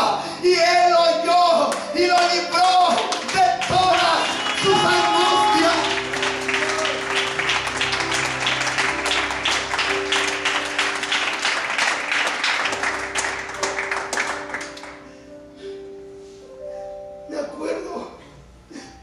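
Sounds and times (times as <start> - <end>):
congregation applauding: 1.7 - 15.1
soft instrumental chords: 1.8 - 19.0.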